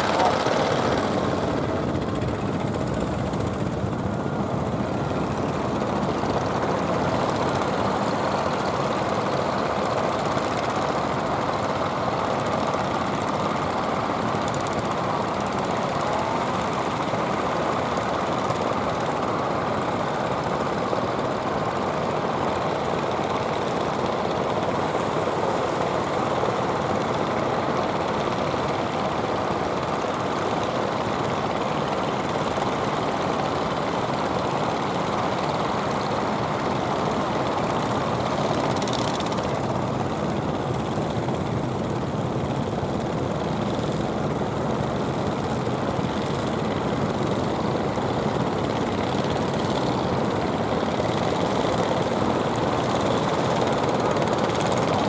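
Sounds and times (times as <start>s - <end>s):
boat engine chugging: 0.0s - 22.6s.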